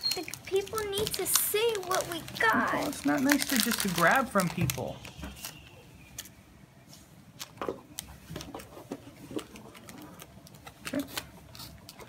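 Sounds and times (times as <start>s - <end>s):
cards rustling: 0.2s - 5.6s.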